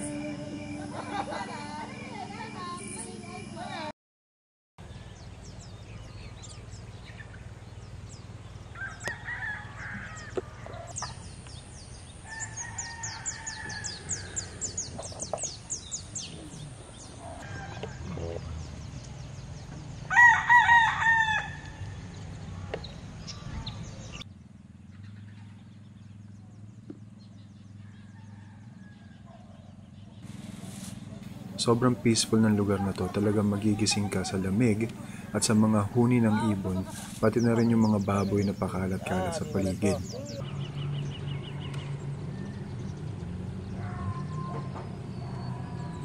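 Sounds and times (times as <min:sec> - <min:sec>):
small birds chirping: 0:04.8 - 0:20.2, 0:21.6 - 0:46.0
rooster crowing: 0:08.7 - 0:10.9, 0:12.2 - 0:14.8, 0:17.2 - 0:18.4, 0:20.1 - 0:22.0, 0:27.8 - 0:29.5, 0:31.4 - 0:40.5.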